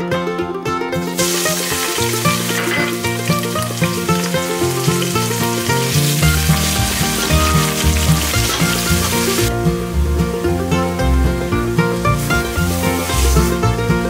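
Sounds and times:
background music: 0.0s - 14.0s
onion sizzling in hot oil: 1.1s - 9.5s, 11.8s - 13.7s.

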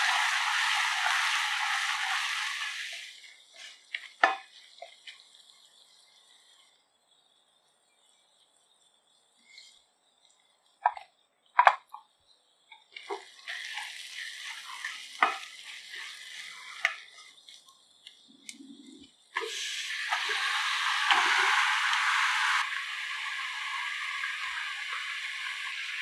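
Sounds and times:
shallots sizzling in oil: 0.0s - 6.7s, 12.6s - 18.5s, 19.3s - 26.0s
chicken sizzling loudly: 0.0s - 6.8s, 12.9s - 26.0s.

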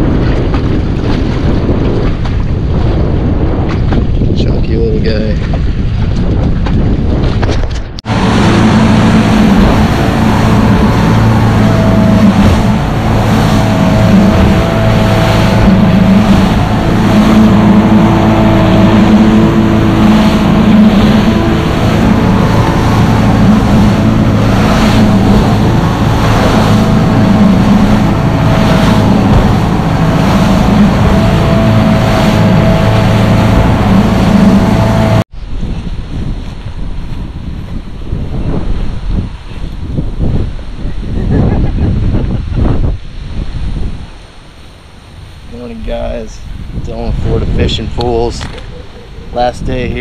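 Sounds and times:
hull slapping waves: 0.0s - 50.0s
wind buffeting microphone: 0.0s - 50.0s
boat engine hum: 7.8s - 50.0s
water rushing: 8.0s - 35.3s, 42.6s - 50.0s.

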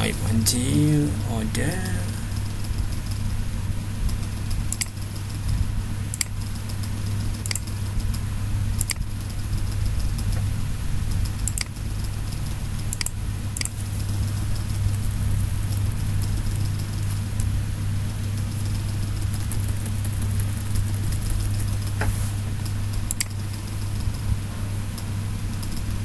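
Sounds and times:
low background hum: 0.0s - 26.0s
computer mouse clicks: 4.1s - 5.5s, 6.1s - 8.2s, 8.8s - 10.5s, 11.2s - 14.8s, 18.4s - 24.2s.

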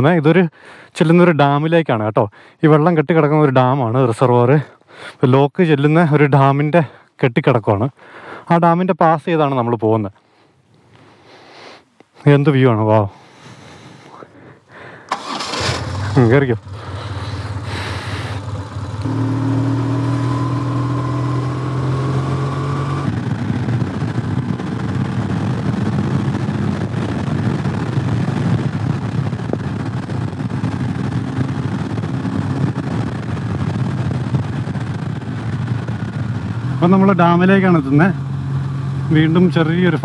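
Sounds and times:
motorcycle engine: 15.1s - 40.0s
wind rush over microphone: 22.4s - 36.8s.

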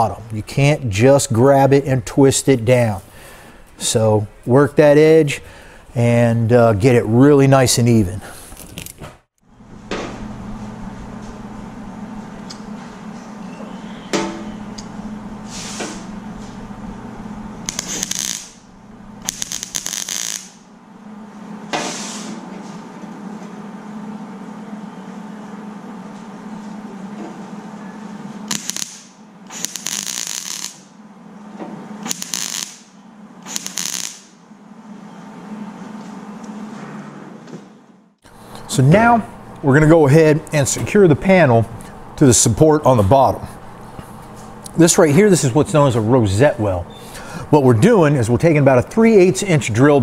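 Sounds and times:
steady low hum: 0.0s - 50.0s
welding arc bursts: 17.6s - 20.7s, 28.5s - 31.0s, 32.0s - 34.4s.

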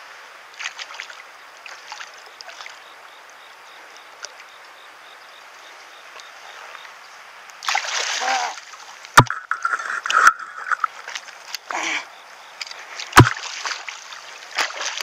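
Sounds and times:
fish splashing in water: 7.6s - 8.9s, 13.0s - 15.0s.

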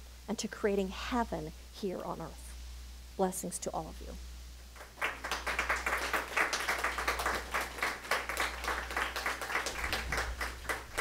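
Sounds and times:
congregation applauding: 4.8s - 11.0s.

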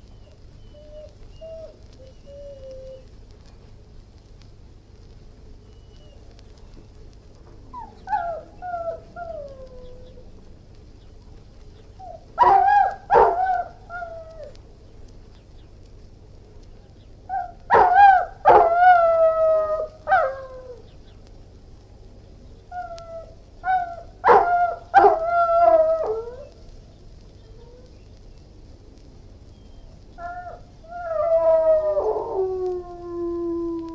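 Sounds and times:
dog howling: 0.1s - 3.1s, 7.7s - 10.2s, 12.0s - 14.6s, 17.3s - 20.8s, 22.7s - 26.6s, 30.2s - 33.9s
dog barking: 12.4s - 13.7s, 17.4s - 18.8s, 23.7s - 25.2s.

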